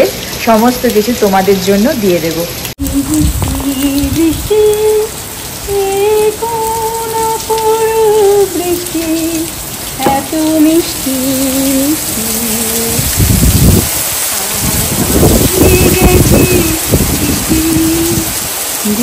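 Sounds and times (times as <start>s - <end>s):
heavy rain: 0.0s - 19.0s
woman singing unaccompanied: 2.8s - 13.2s, 14.2s - 19.0s.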